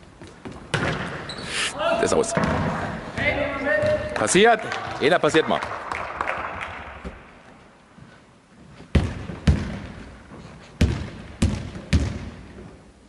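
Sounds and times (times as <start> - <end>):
ball bouncing on wooden floor: 8.9 - 10.0, 10.8 - 12.4.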